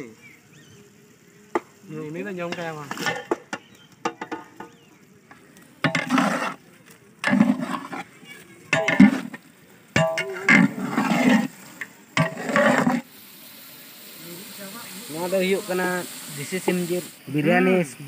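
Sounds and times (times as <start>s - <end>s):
metal spatula scraping pot: 2.5s - 4.6s, 5.8s - 6.6s, 7.2s - 9.4s, 10.0s - 13.1s.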